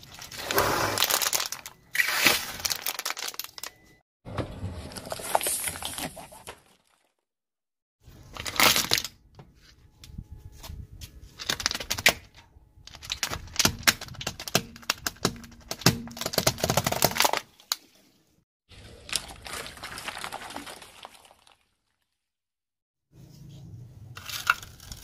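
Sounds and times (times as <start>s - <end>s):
tyre crushing brittle objects: 0.0s - 3.8s, 12.9s - 17.8s, 24.2s - 25.0s.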